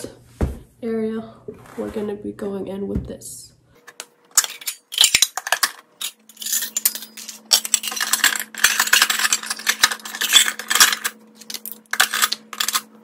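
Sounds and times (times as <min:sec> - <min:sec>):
metal toy pots clattering: 0:04.4 - 0:13.0.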